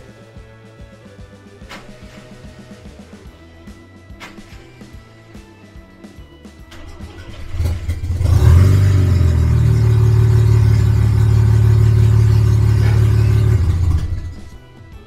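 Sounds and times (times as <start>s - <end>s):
loud rotary engine revving: 6.8s - 14.6s.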